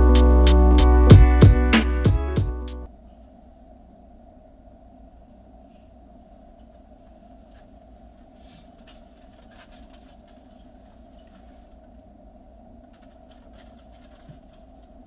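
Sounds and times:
low electrical hum: 2.8s - 15.0s
clicks and rustles at microphone: 7.4s - 11.9s, 12.8s - 15.0s.

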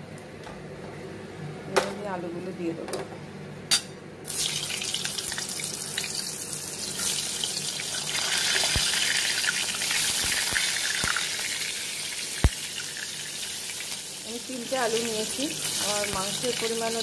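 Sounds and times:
potatoes sizzling in hot oil: 4.3s - 17.0s.

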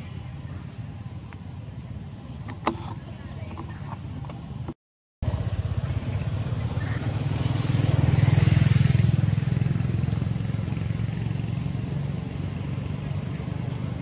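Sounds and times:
passing vehicle engine rumble: 5.2s - 14.0s.

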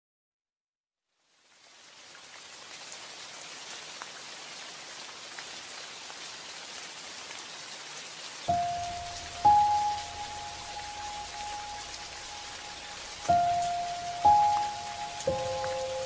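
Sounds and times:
hiss of falling water: 1.2s - 16.0s.

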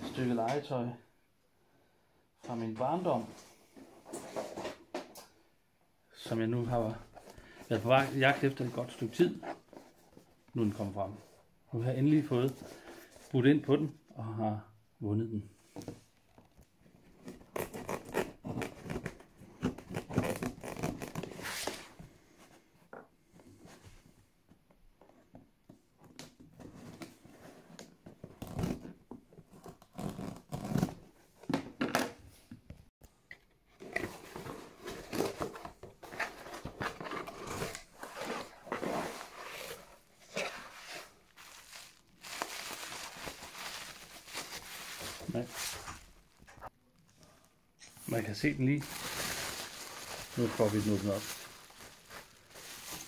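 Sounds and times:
cardboard tearing and rustling: 34.1s - 46.4s, 48.8s - 53.0s
bubble wrap crinkling: 39.2s - 46.7s, 48.1s - 53.0s.

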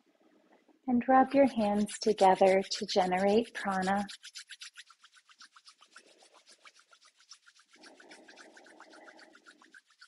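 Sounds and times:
soft steady rush: 1.1s - 4.3s
hands rubbing together: 1.4s - 10.0s.

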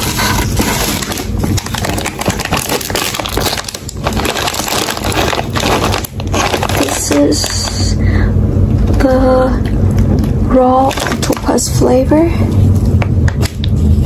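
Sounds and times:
chip bags crinkling: 0.0s - 8.0s, 8.9s - 11.8s.

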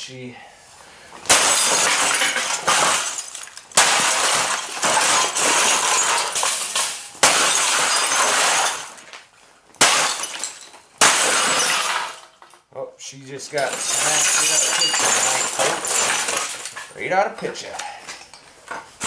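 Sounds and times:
glass breaking and plastic cracking: 1.3s - 12.7s, 13.6s - 17.0s.

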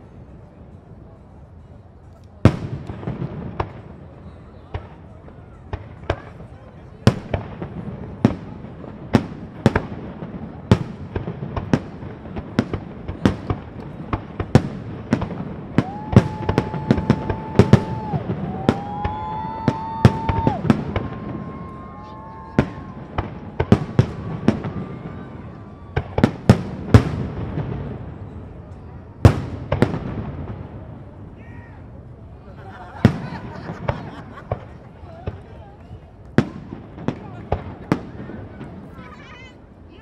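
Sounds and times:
fireworks bangs: 2.4s - 31.4s, 32.9s - 39.1s
fireworks whistling: 14.4s - 27.6s.

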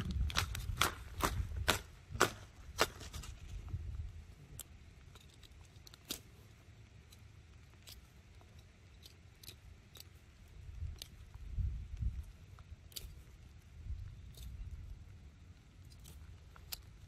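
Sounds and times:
low rumbling: 0.0s - 5.1s.

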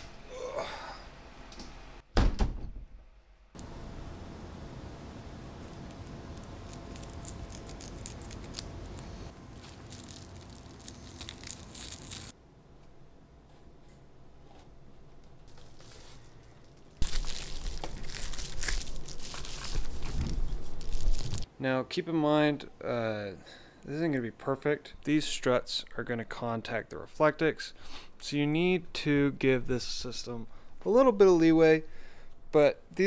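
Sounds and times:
foil insulation crinkling: 6.0s - 12.4s, 15.5s - 21.5s.

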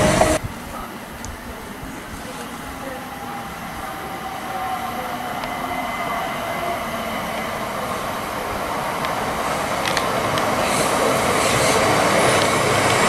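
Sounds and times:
electric train running: 0.0s - 0.4s, 2.2s - 13.0s.

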